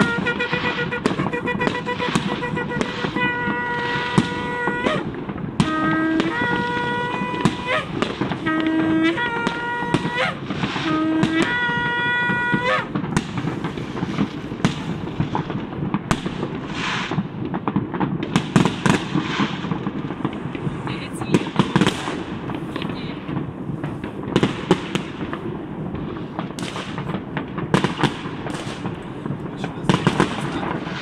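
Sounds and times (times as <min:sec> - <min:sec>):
shofar blasts: 0:00.0 - 0:13.5
fireworks crackling and banging: 0:00.0 - 0:31.0.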